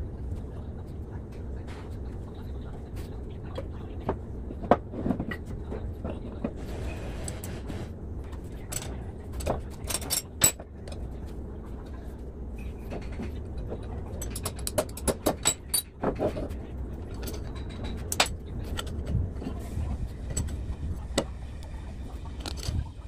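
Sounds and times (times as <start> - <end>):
low hum: 0.0 - 23.0
metal parts clinking and knocking: 8.7 - 11.0, 14.1 - 16.4.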